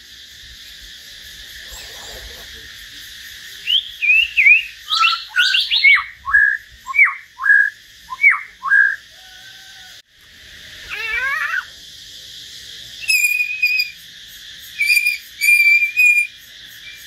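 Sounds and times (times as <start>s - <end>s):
steady high hiss: 0.0s - 17.0s
songbird whistling: 3.6s - 9.3s, 13.0s - 14.0s, 14.7s - 17.0s.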